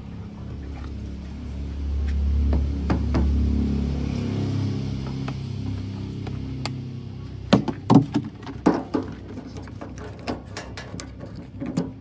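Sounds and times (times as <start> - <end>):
low hum: 0.0 - 11.7.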